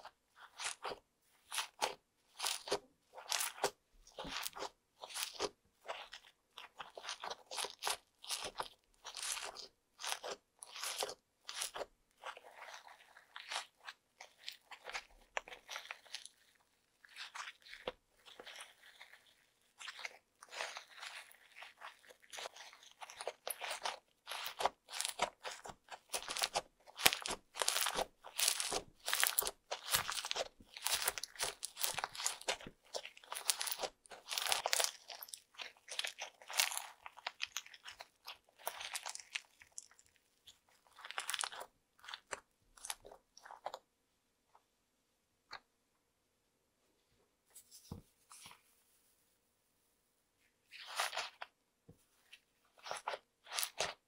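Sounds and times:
slime squishing and crackling: 0:00.0 - 0:44.0, 0:50.7 - 0:51.6, 0:52.2 - 0:54.0.

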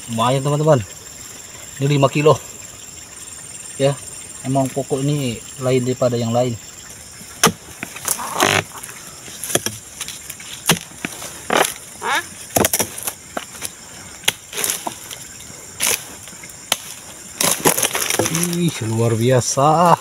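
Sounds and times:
chisel chopping plant stalk: 0:07.4 - 0:08.7, 0:09.4 - 0:09.8, 0:10.6 - 0:11.8, 0:14.2 - 0:15.0.

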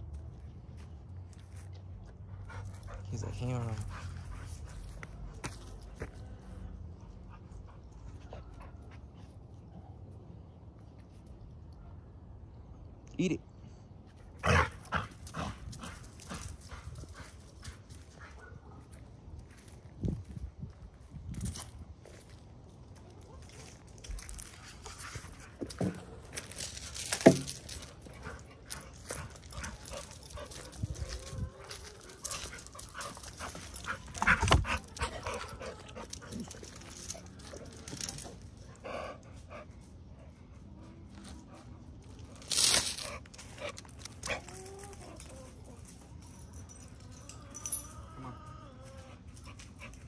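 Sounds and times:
rustling: 0:24.3 - 0:35.3, 0:36.1 - 0:38.3, 0:42.4 - 0:43.2.

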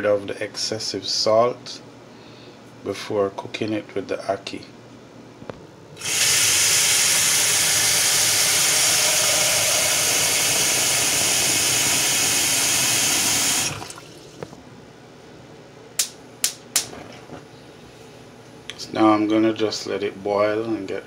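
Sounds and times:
tap water running into a pot: 0:06.0 - 0:14.4
sharp clicks: 0:16.0 - 0:16.9.

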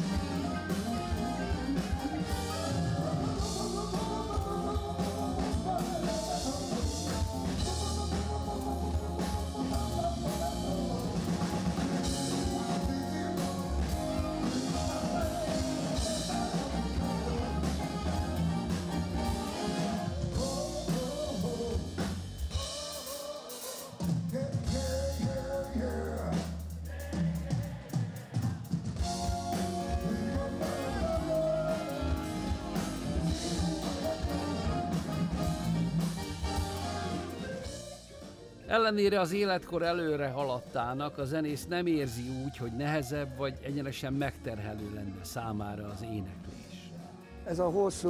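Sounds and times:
wavering lead line: 0:00.0 - 0:23.0
man singing: 0:00.0 - 0:35.9, 0:38.7 - 0:48.0
drum kit: 0:00.0 - 0:48.0
guitar: 0:00.0 - 0:48.0
live rock band playing: 0:00.0 - 0:48.0.

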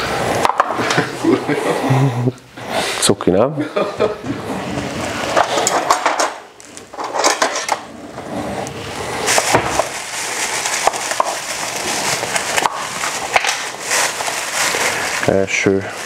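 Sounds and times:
foam container rubbing and rustling: 0:04.4 - 0:16.0.

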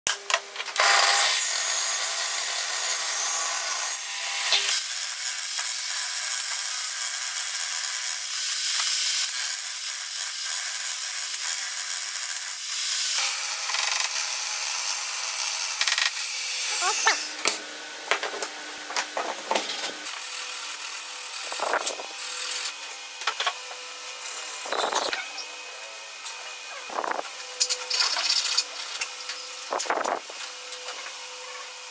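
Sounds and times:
table saw ripping a board: 0:00.2 - 0:25.6, 0:26.2 - 0:31.9
board handling sounds: 0:17.4 - 0:20.0.

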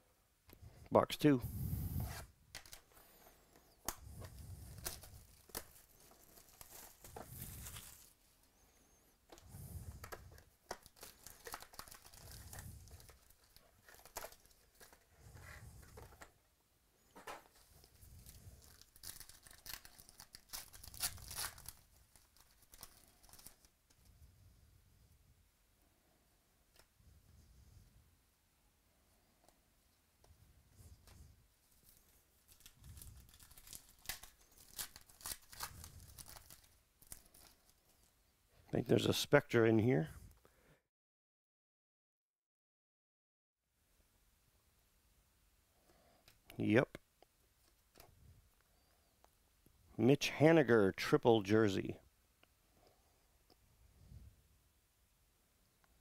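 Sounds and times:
foil wrappers crinkling: 0:02.6 - 0:16.2, 0:17.2 - 0:23.8, 0:31.7 - 0:38.1.

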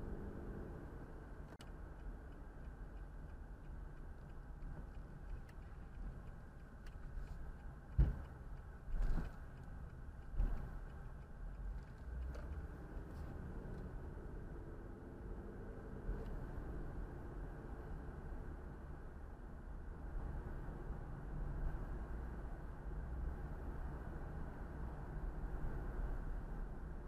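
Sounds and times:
car engine and tyres rumbling: 0:00.0 - 0:27.0
faint ticks: 0:01.5 - 0:13.9.

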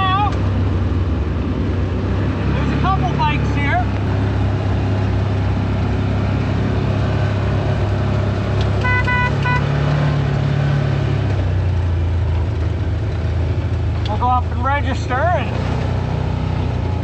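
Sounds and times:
atv engine running: 0:00.0 - 0:17.0
horn beeping: 0:08.7 - 0:09.9.

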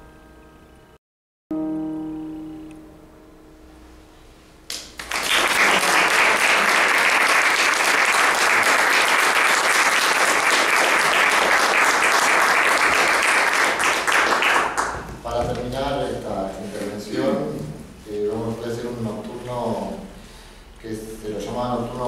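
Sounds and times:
digital piano chord: 0:00.0 - 0:04.7
audience applauding: 0:04.7 - 0:15.3.

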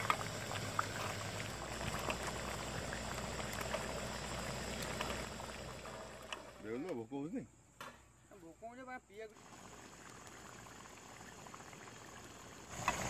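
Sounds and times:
curry bubbling in a pan: 0:00.0 - 0:06.6, 0:09.4 - 0:13.0.

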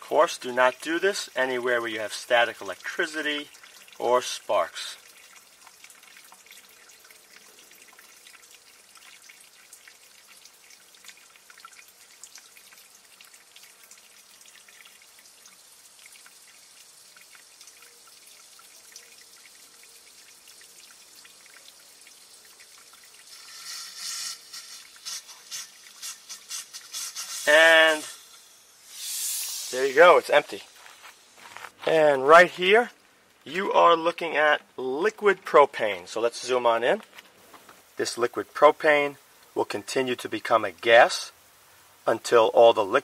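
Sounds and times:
liquid trickling into glass jar: 0:00.3 - 0:31.4
gas cylinder hissing spurts: 0:22.8 - 0:31.5.

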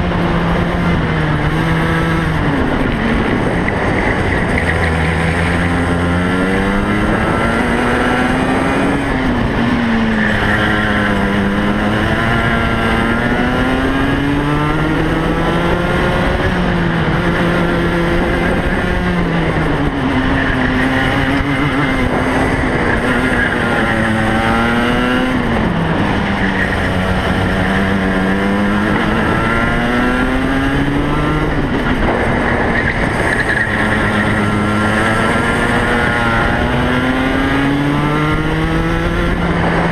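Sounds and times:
racing kart engine revving: 0:00.0 - 0:39.9.

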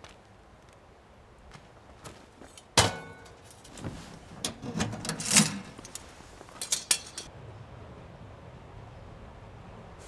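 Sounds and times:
cooking gear knocking and clinking: 0:06.6 - 0:07.3.

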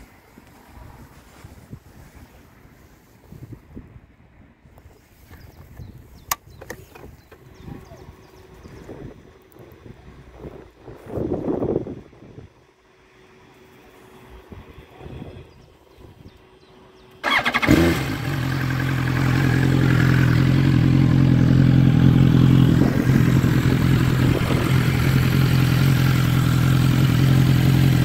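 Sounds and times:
motorcycle engine starting and idling: 0:17.1 - 0:28.0.

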